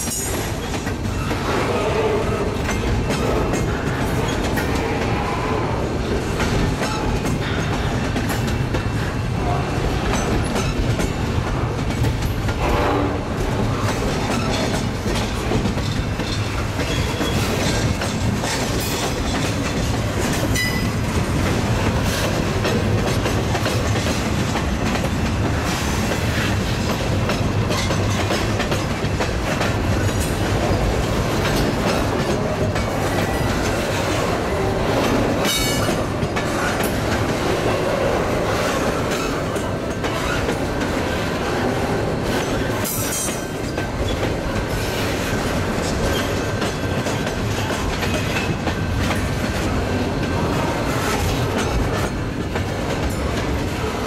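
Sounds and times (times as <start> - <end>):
train wheels rumbling on rails: 0.0 - 54.0
wheels clickety-clack: 0.0 - 54.0.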